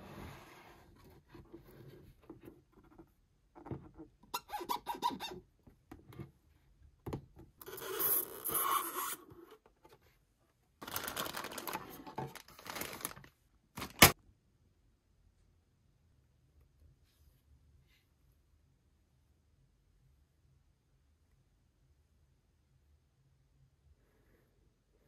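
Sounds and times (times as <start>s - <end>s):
packaging rustling and scraping: 10.8s - 14.2s.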